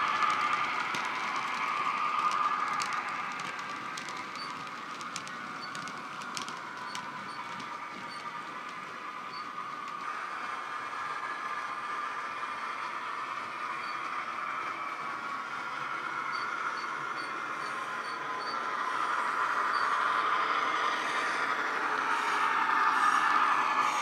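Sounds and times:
model wagon wheels clicking on track: 0:00.0 - 0:10.1
model locomotive engine sound: 0:00.0 - 0:24.0.

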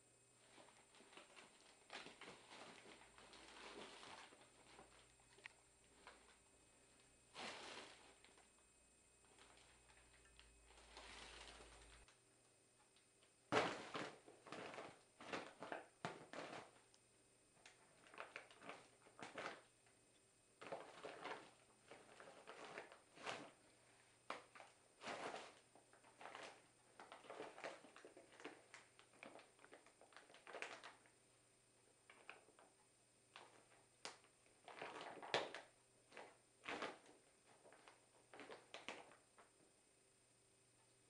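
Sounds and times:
kitten scrabbling in fabric bag: 0:00.4 - 0:05.0, 0:07.3 - 0:08.4, 0:10.7 - 0:12.0, 0:13.5 - 0:16.8, 0:24.4 - 0:31.0.

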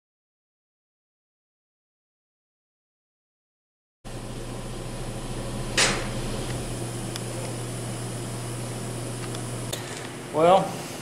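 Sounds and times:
machine electrical hum: 0:04.1 - 0:11.0.

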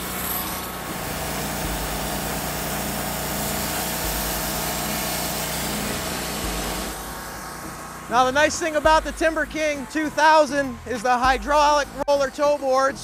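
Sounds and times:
sawmill engine running: 0:00.0 - 0:10.3.

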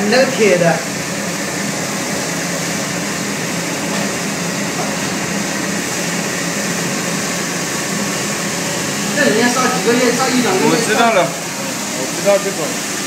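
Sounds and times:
furnace machine hum: 0:00.0 - 0:13.0.

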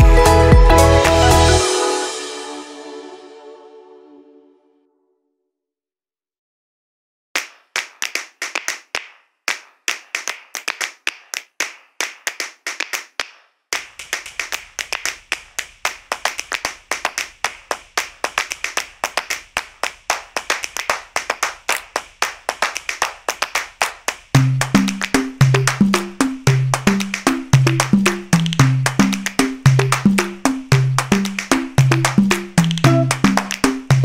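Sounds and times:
rhythmic hand claps: 0:07.4 - 0:34.0.

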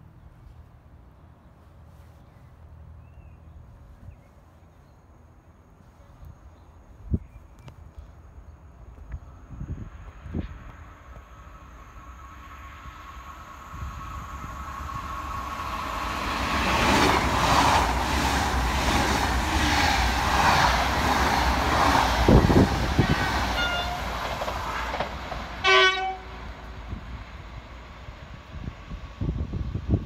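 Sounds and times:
train rushing past: 0:09.3 - 0:30.0
train horn blast: 0:23.1 - 0:25.0, 0:25.6 - 0:26.5.

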